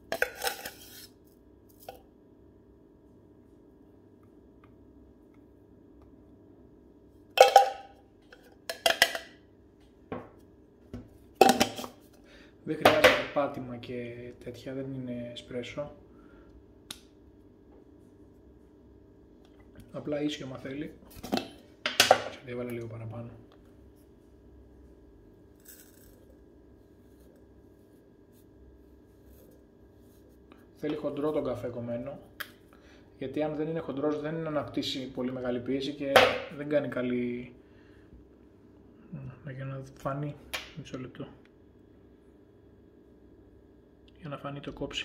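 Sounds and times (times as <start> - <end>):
soft rustle of ground coffee: 23.8 - 31.5.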